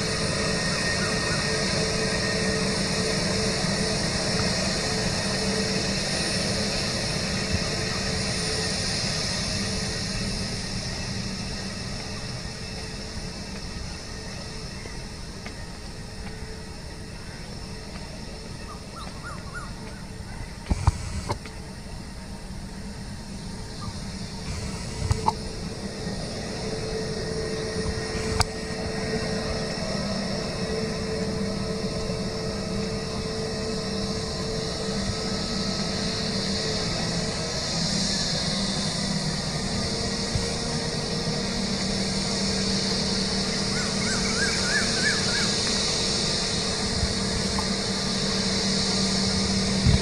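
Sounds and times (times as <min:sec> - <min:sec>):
jet engines whining: 0:00.0 - 0:50.0.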